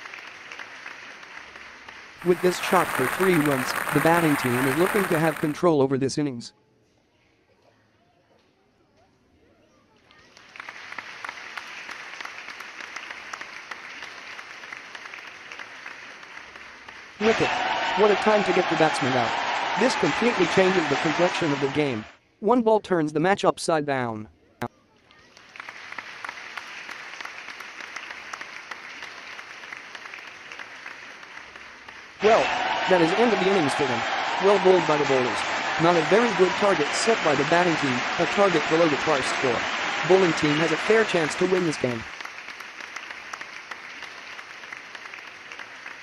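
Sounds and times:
crowd applauding: 0.0 - 5.7, 10.2 - 22.1, 25.2 - 46.0.

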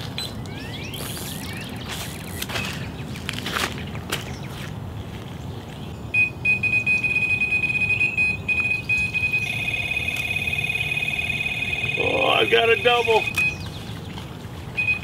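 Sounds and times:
rapidly pulsing high-pitched beep: 6.2 - 13.6, 14.8 - 15.0
second alarm tone: 6.2 - 13.6, 14.8 - 15.0.

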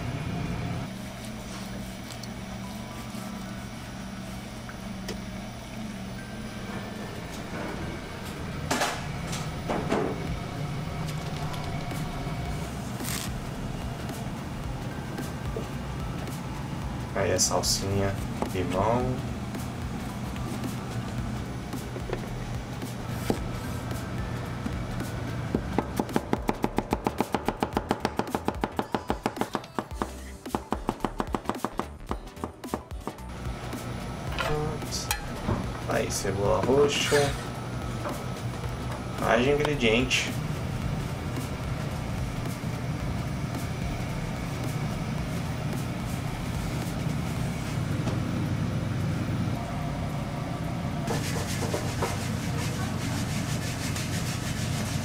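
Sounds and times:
low kitchen hum: 0.0 - 55.0
knife chopping onion on board: 25.5 - 33.2.

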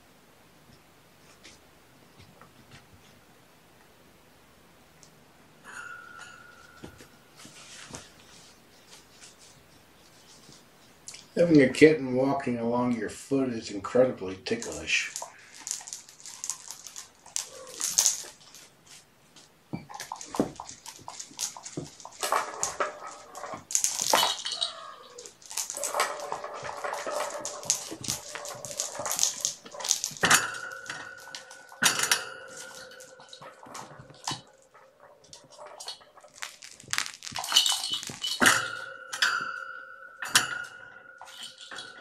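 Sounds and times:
metallic ringing tone: 5.6 - 7.7, 26.1 - 35.2, 37.8 - 42.0
kittens mewing: 17.4 - 18.0, 24.6 - 25.4
sharp knocks and clatter: 19.7 - 42.0.

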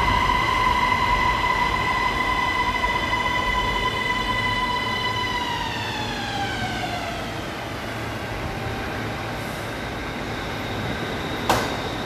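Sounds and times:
steady train hum: 0.0 - 12.0
sharp clunk: 11.5 - 11.8.

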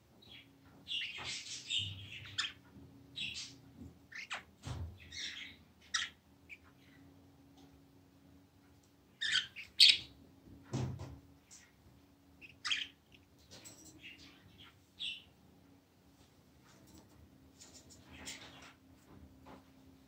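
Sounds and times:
budgerigars chirping: 0.2 - 7.0, 9.2 - 10.2, 12.4 - 13.0, 14.0 - 15.3.

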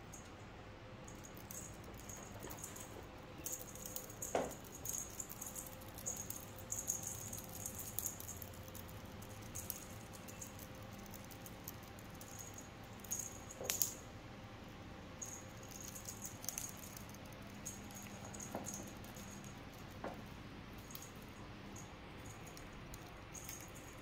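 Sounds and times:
small bell jingling: 1.0 - 14.0, 15.2 - 24.0.

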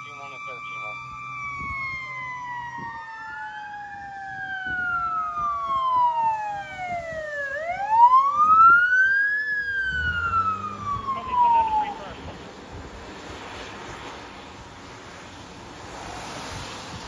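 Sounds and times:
ambulance siren wailing: 0.0 - 12.4
fire engine siren falling: 0.0 - 12.4
engine and wet tyre noise: 0.0 - 17.0.

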